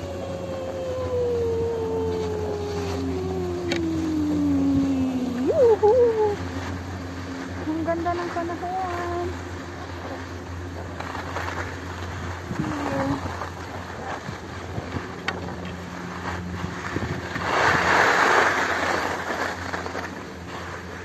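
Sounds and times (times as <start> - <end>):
wind on phone microphone: 12.4 - 13.3, 16.7 - 17.9.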